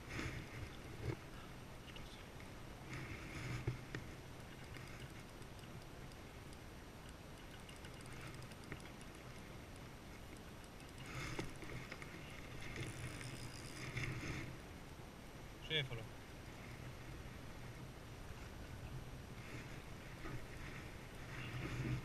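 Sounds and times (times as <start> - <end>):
fishing reel clicks: 7.4 - 11.1, 12.8 - 14.0.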